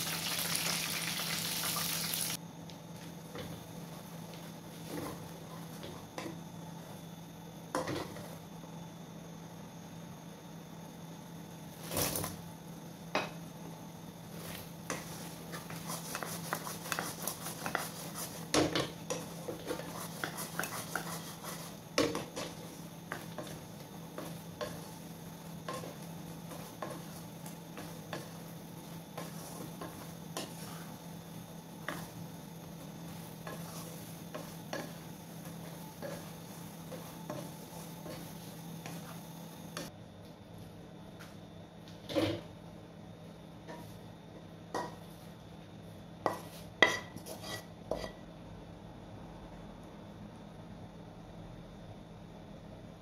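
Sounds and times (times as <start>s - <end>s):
spatula knocking and scraping wok: 14.4s - 39.9s, 43.6s - 45.2s, 46.2s - 48.2s.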